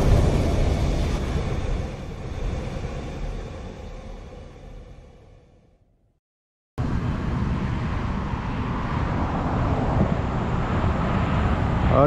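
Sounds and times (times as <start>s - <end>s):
road traffic rumble: 6.8s - 12.0s.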